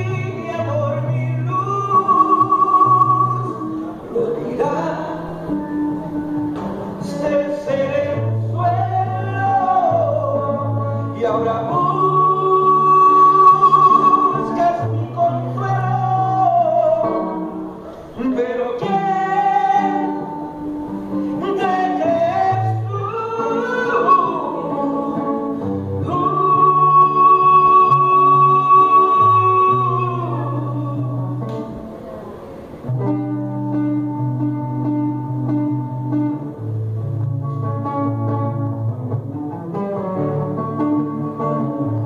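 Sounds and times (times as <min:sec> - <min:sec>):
man singing a slow ballad: 0:00.0 - 0:31.7
acoustic guitar: 0:00.0 - 0:42.0.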